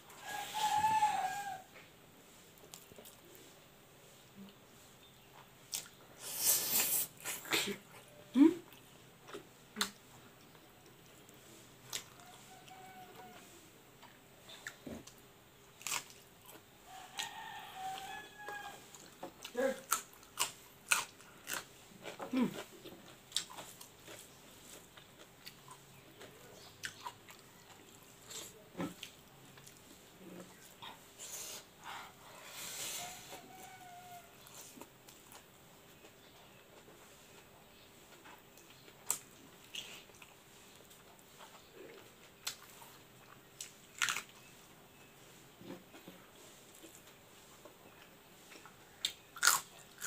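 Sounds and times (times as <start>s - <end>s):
faint close-up chewing: 0.1s - 3.6s, 4.3s - 50.0s.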